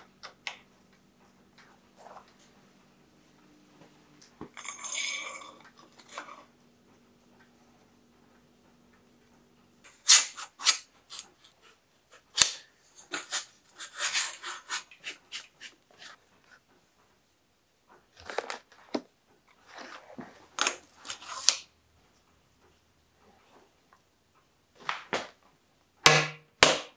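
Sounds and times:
rasping scrape: 9.9 - 16.2.

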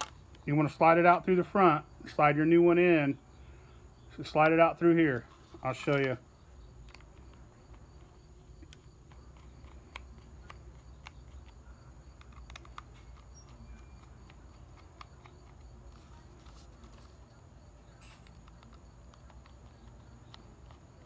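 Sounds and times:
screwdriver clicking on screws: 6.8 - 16.0.

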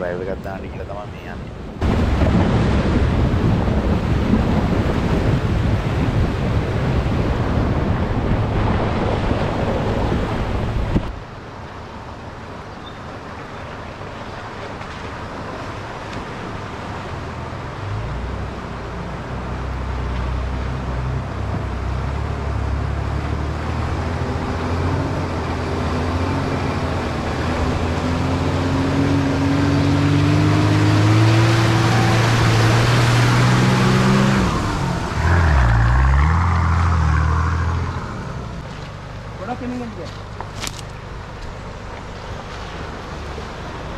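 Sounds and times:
loud wind-like rush: 1.6 - 11.3.

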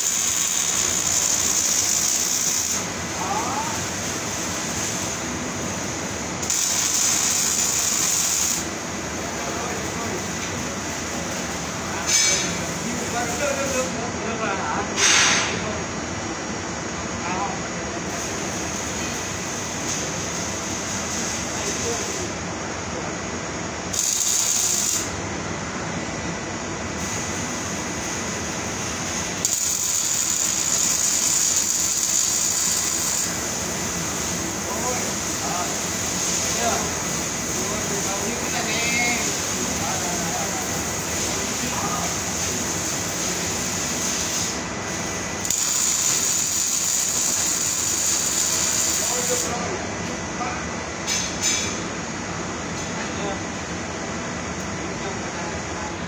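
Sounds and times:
welding arc hissing: 0.0 - 14.0, 18.0 - 22.4, 23.9 - 25.2, 27.0 - 49.6
workshop machinery noise: 0.0 - 56.0.

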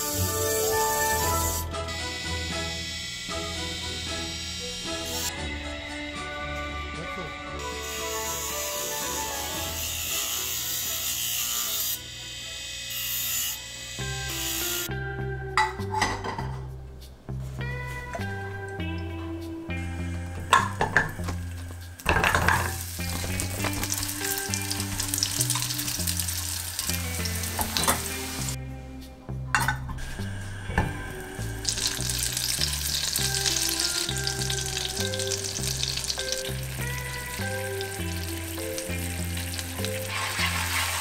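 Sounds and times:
food sizzling in oil: 0.0 - 1.6, 20.6 - 28.6, 31.4 - 41.0
butter sizzling: 20.6 - 28.6, 31.4 - 41.0.

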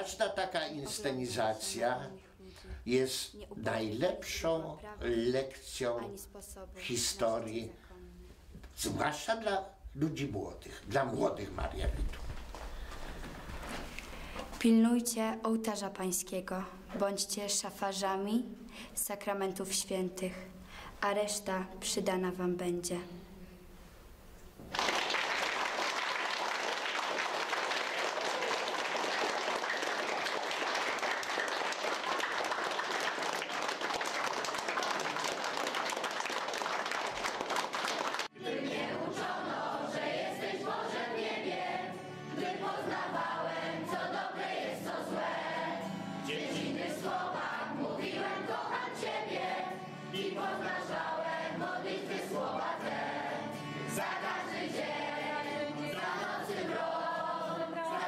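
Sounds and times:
audience clapping: 12.2 - 13.4, 24.6 - 38.4
acoustic guitar: 38.1 - 58.0
young voices singing together: 38.3 - 58.0.

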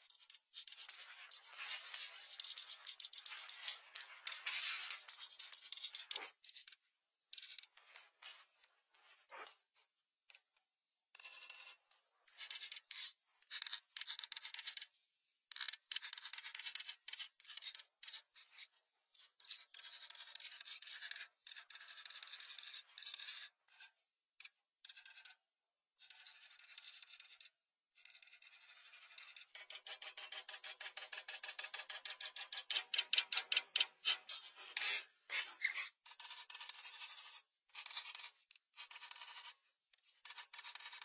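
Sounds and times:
crayon scribbling on paper: 0.0 - 3.9, 33.4 - 39.5, 40.2 - 41.0.

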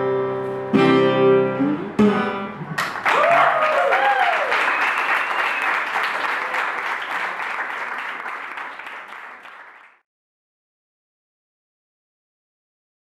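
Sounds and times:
small audience applauding: 2.8 - 10.0.

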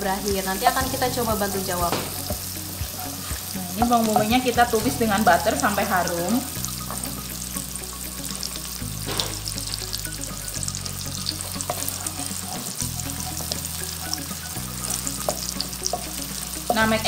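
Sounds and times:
background music with bass line: 0.0 - 17.0
onion sizzling in a pan: 0.0 - 17.0
wooden spoon stirring: 11.2 - 17.0.

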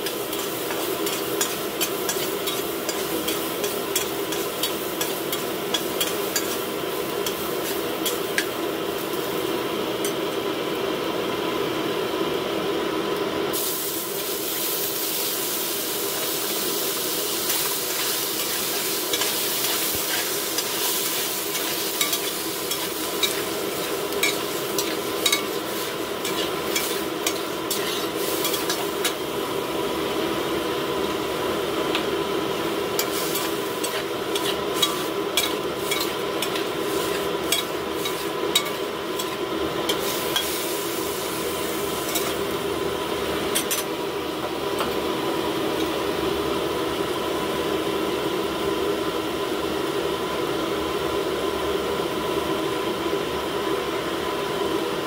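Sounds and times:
food sizzling in a wok: 0.0 - 55.0
steady hum: 16.0 - 47.7.

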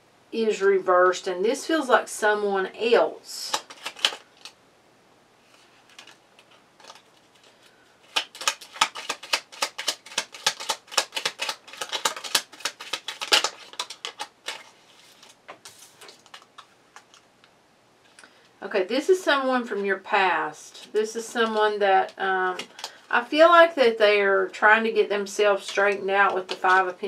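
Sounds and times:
cards shuffling: 3.4 - 4.6, 5.5 - 17.3, 20.8 - 23.1, 25.6 - 26.9
cards snapping on table: 8.1 - 14.7.

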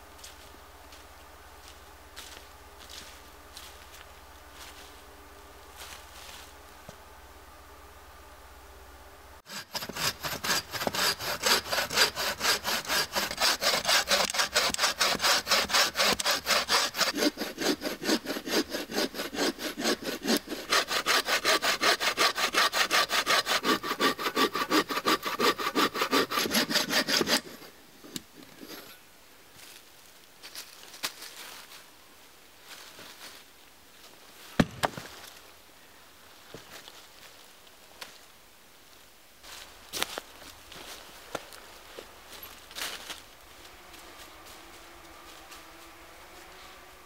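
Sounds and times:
saw cutting through log: 9.4 - 28.9, 43.6 - 47.0.

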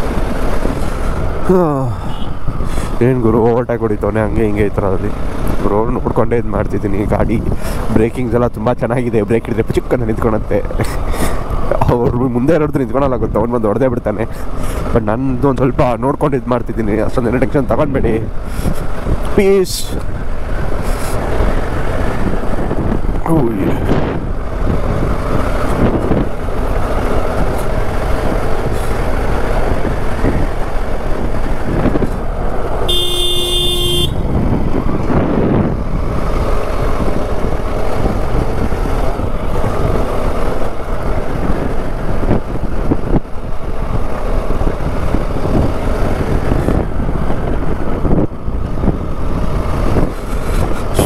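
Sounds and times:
wind noise: 0.0 - 51.0
motorcycle engine: 23.9 - 51.0
vehicle horn: 32.8 - 34.3.

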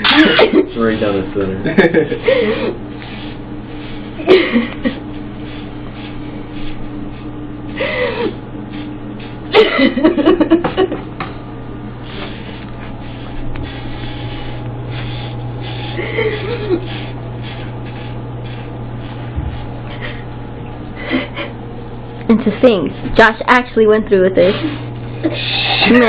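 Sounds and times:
electric hair clippers buzzing: 0.0 - 23.3, 24.1 - 26.0
woman crying: 2.2 - 2.8, 4.2 - 5.0, 7.8 - 8.4, 9.5 - 10.5, 21.0 - 21.6.

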